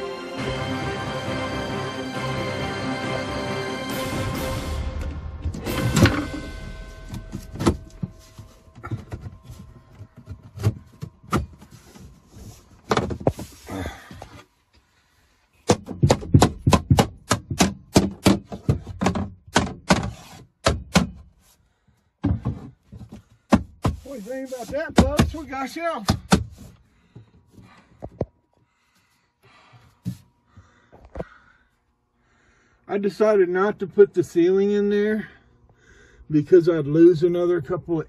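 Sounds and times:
knocks and thuds on wood: 15.6 - 21.3, 22.2 - 24.1, 24.7 - 25.5, 26.1 - 26.6.

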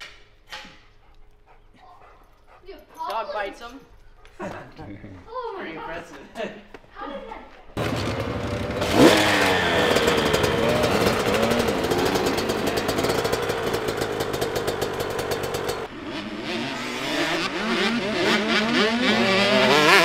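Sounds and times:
dirt bikes riding a track: 7.7 - 20.0
dirt bike engine revving: 7.8 - 20.0.

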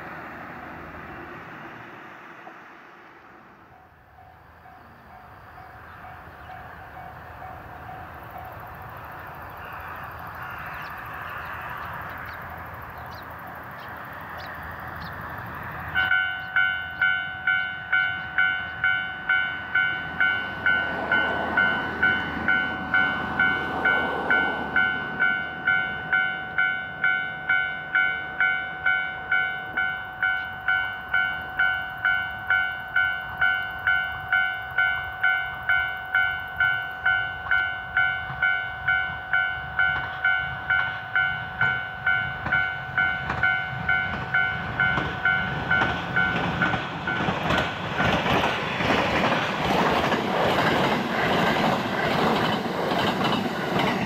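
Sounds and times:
rushing noise: 0.0 - 4.0
level crossing warning bell: 16.0 - 48.4.

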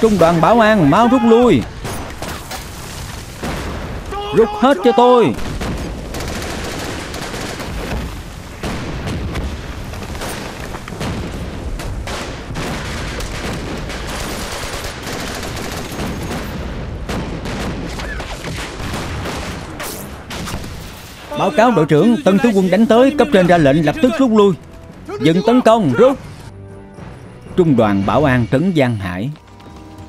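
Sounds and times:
rifle and machine-gun fire: 5.4 - 21.1.

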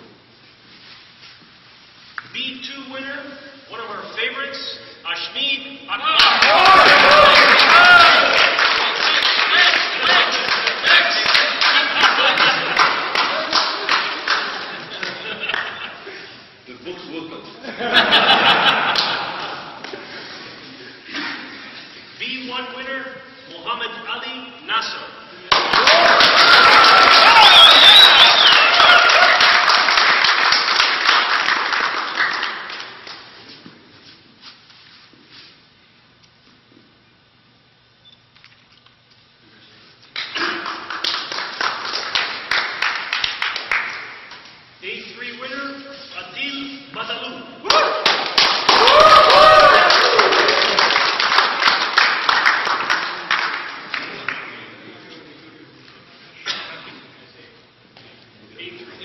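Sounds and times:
small group applauding: 6.1 - 16.0, 18.8 - 20.0, 25.4 - 33.4, 40.1 - 44.6, 47.6 - 54.8
people clapping: 6.1 - 16.1, 18.6 - 20.1, 25.4 - 33.5, 40.1 - 44.6, 47.6 - 54.9.

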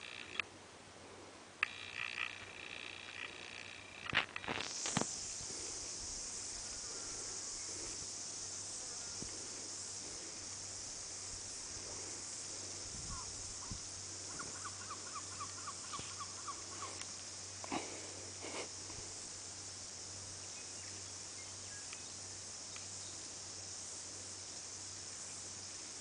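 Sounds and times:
high-pitched insect chorus: 0.0 - 0.4, 1.6 - 26.0
sharp clicks: 0.0 - 0.5, 1.6 - 5.1.

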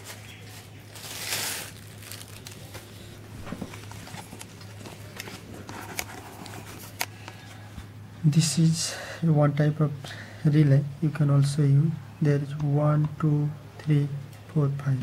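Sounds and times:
paper rustling: 0.0 - 7.6.

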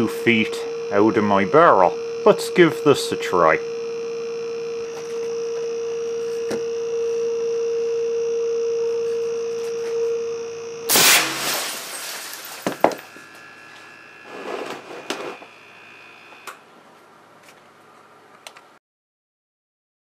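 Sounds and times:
steady hum: 0.0 - 18.3
air cannon blast: 10.9 - 11.6
falling debris rattling: 10.9 - 13.1
glass tube shattering: 10.9 - 13.1.

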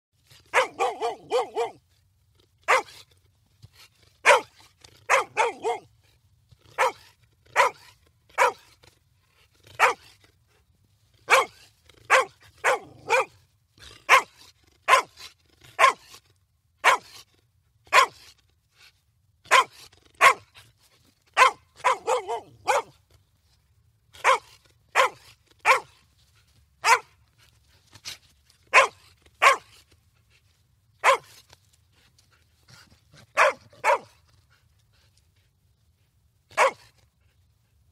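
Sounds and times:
dog barking: 0.5 - 1.8, 2.7 - 3.0, 4.2 - 4.5, 5.1 - 5.9, 6.8 - 8.7, 9.8 - 10.0, 11.3 - 13.4, 14.1 - 14.3, 14.9 - 15.2, 15.8 - 16.1, 16.8 - 17.2, 17.9 - 18.2, 19.5 - 20.5, 21.4 - 23.0, 24.2 - 25.9, 26.8 - 27.1, 28.7 - 29.7, 31.0 - 31.3, 33.3 - 34.2, 36.5 - 36.9.

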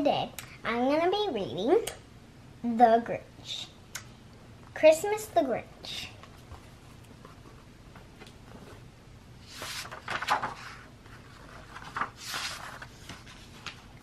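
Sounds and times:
book pages rustling: 9.4 - 14.0.

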